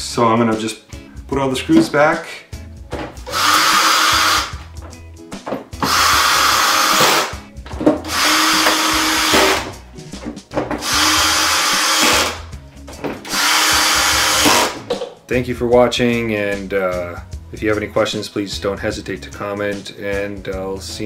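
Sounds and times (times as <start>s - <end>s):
cordless drill driving screws: 3.3s - 4.6s, 5.8s - 7.4s, 8.0s - 9.7s, 10.8s - 12.4s, 13.2s - 14.8s.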